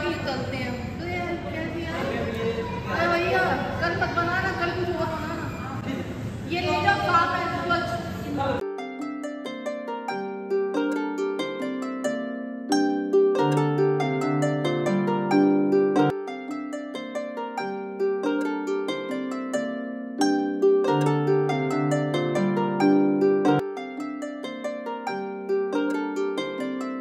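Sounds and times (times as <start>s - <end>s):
plucked string melody: 8.6s - 27.0s.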